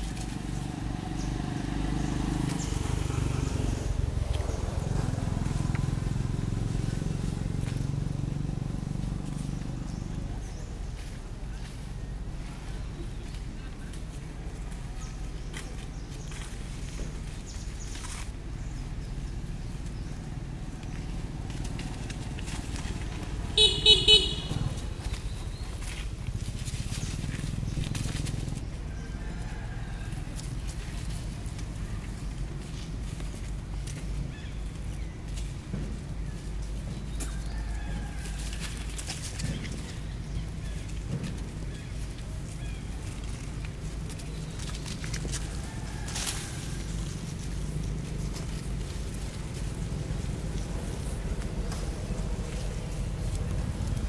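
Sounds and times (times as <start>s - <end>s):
low engine hum: 0.0s - 54.0s
vehicle horn toots: 23.5s - 24.8s.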